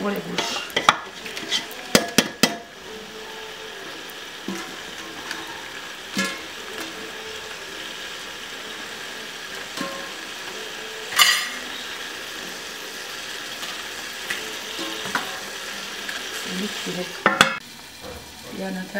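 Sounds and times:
food sizzling in metal pot: 0.0 - 18.9
spoon knocking on pot: 1.9 - 2.7, 17.2 - 17.6.

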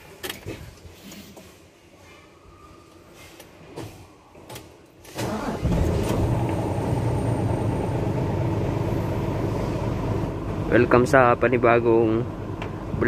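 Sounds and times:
diesel engine starting and idling: 5.1 - 13.0.

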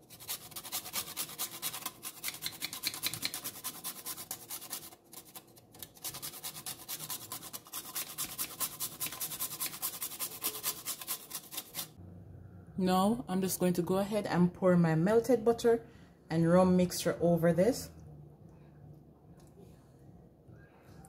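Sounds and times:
nutmeg scraping on metal grater: 0.0 - 11.9.

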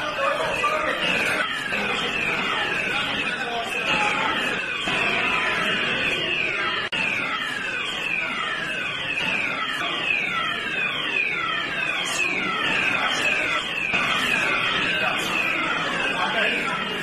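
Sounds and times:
electronic alarm falling tone: 0.0 - 17.0.

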